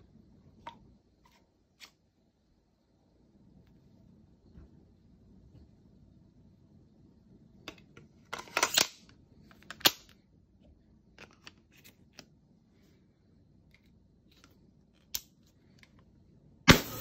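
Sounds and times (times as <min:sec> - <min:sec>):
grenade launcher shot: 0:16.7 - 0:17.0.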